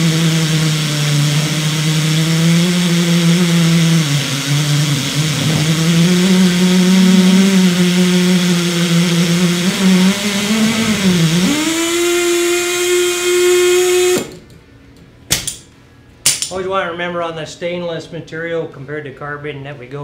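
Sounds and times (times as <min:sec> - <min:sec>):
air motor running: 0:00.0 - 0:14.6.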